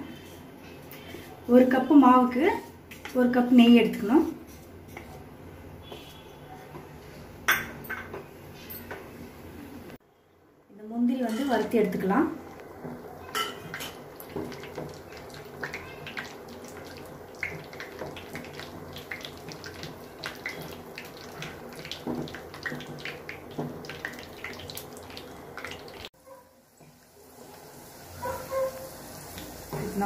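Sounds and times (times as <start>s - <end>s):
nuts sizzling in oil: 12.5s - 30.0s.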